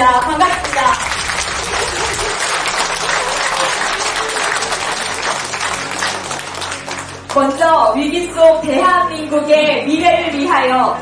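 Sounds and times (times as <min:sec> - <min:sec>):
audience applauding: 0:01.2 - 0:07.4.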